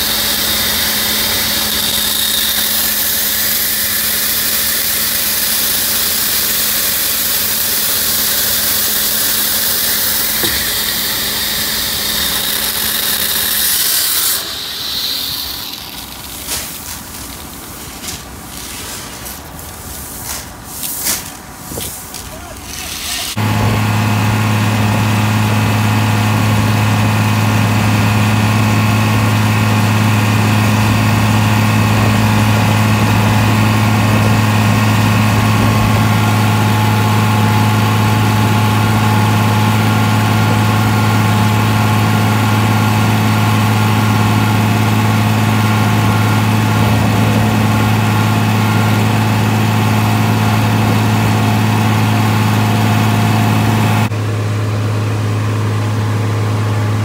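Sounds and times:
tractor engine droning: 0.0 - 19.8, 23.3 - 57.0.

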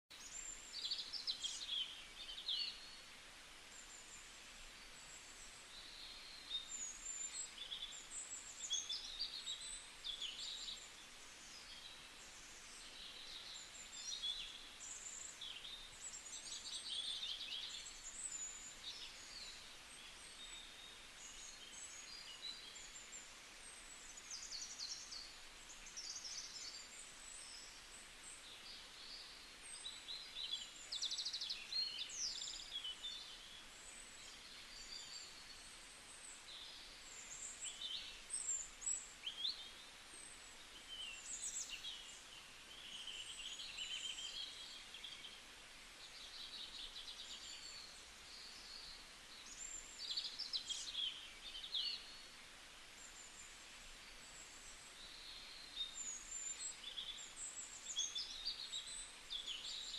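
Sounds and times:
faint steady hiss: 0.1 - 59.9
small birds chirping and trilling: 0.1 - 59.9.

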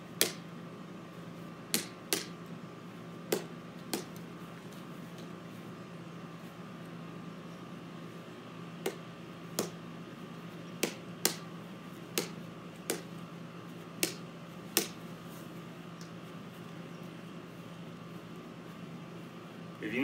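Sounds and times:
plastic ball hit off a paddle: 1.7 - 2.3, 12.1 - 13.1, 14.0 - 15.0.

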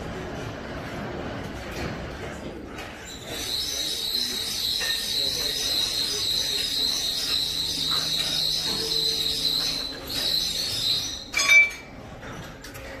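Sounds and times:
shrill high-pitched whine: 3.0 - 11.9
metal clang ringing: 11.2 - 12.5.

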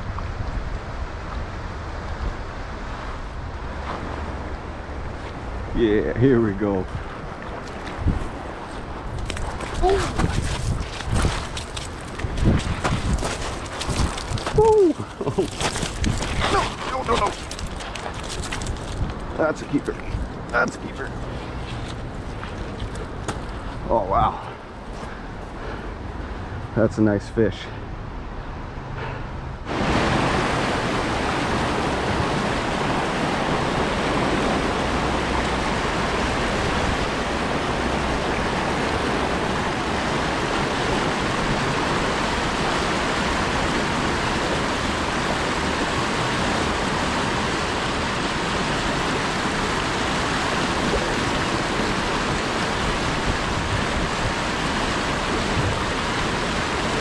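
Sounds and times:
fast-flowing stream water: 29.7 - 57.0.

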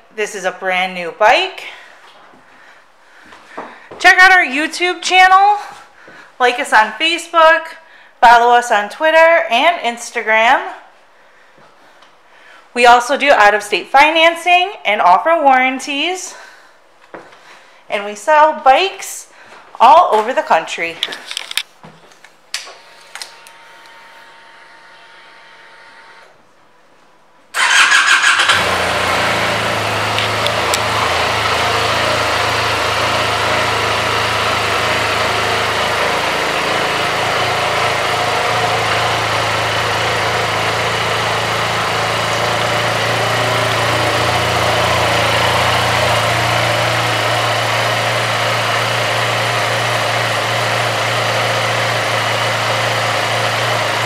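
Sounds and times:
engine starting and idling: 27.6 - 54.0.

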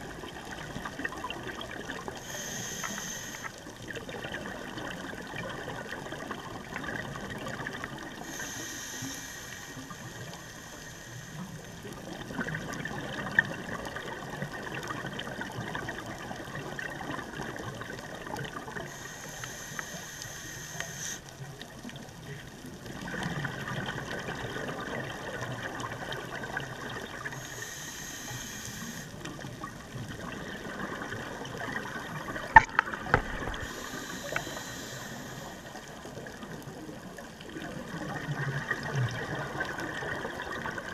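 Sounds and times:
regulator breathing inhale hiss: 2.1 - 3.8, 8.2 - 12.0, 18.5 - 21.5, 27.2 - 29.3, 33.3 - 36.4
exhaled bubbles rushing: 29.3 - 33.8, 36.1 - 40.9.

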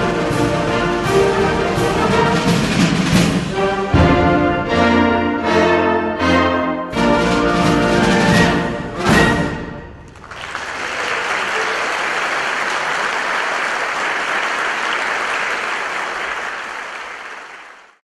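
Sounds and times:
audience applauding: 10.1 - 18.0.

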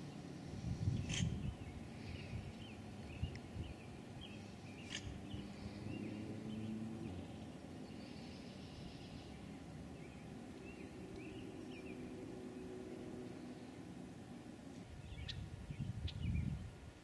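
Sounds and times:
faint bird chirps: 15.0 - 16.7.

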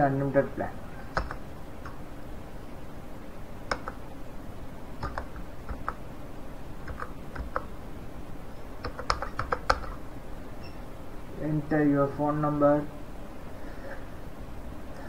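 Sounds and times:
low background noise: 0.0 - 15.0
keyboard key clicks: 1.1 - 2.0, 5.0 - 6.0, 8.8 - 10.0.

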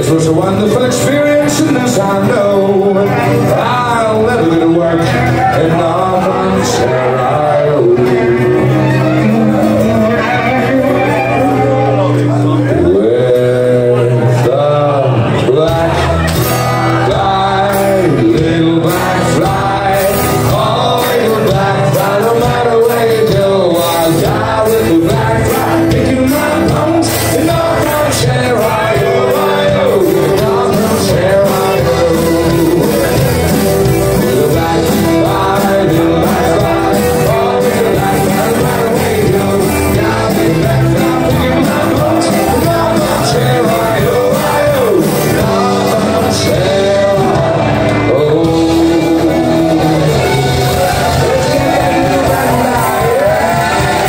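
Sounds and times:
guitars: 0.0 - 54.0
person singing lead vocal: 0.0 - 54.0
drums beating: 15.6 - 54.0.

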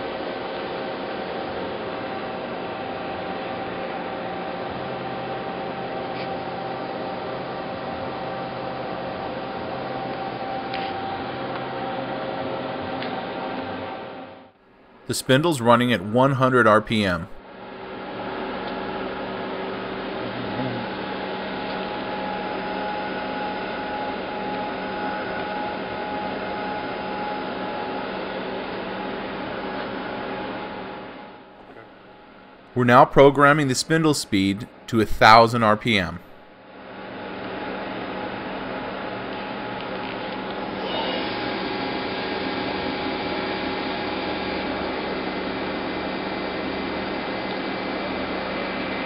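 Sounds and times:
machine hum with faint whine: 0.0 - 49.0.

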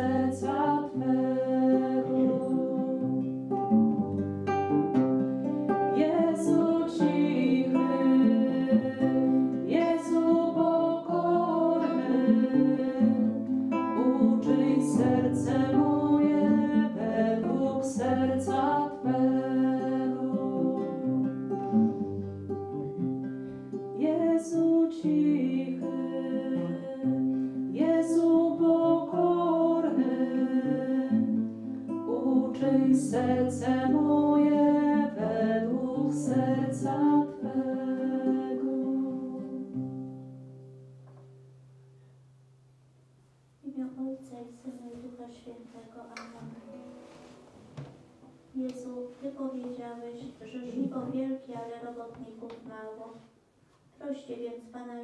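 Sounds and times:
women singing a hymn: 0.0 - 3.4, 5.7 - 21.4, 24.0 - 40.0
acoustic guitar: 0.0 - 55.0.

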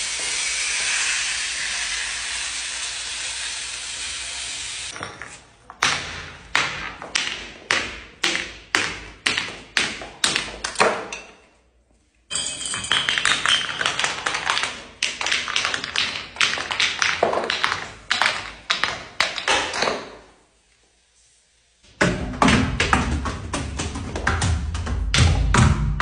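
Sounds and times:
bottles tumbling down stone stairs: 4.9 - 8.2, 12.3 - 20.3.

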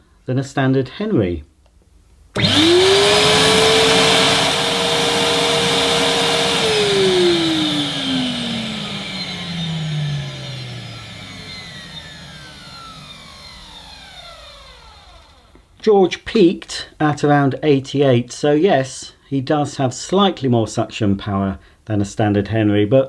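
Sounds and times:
vacuum cleaner motor whine: 2.4 - 15.7.

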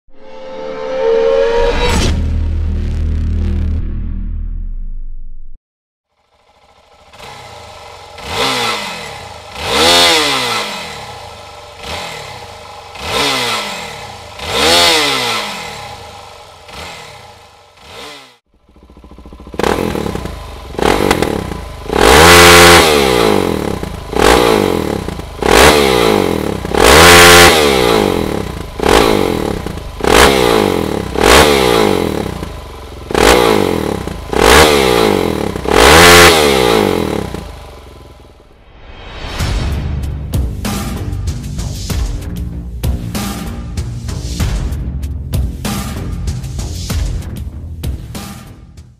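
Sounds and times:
motorcycle engine revving: 6.0 - 38.6.

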